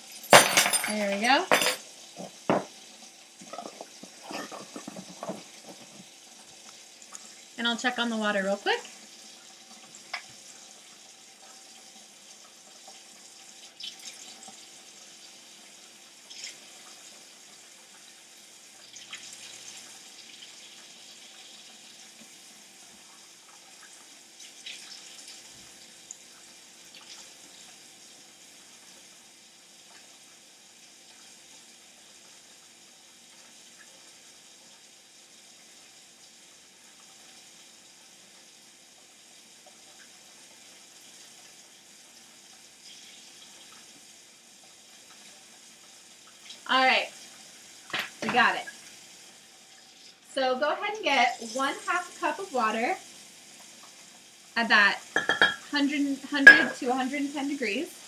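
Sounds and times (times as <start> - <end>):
tap running into sink: 1.5 - 2.8, 3.4 - 6.1, 47.9 - 48.5, 55.2 - 55.7, 56.4 - 56.8.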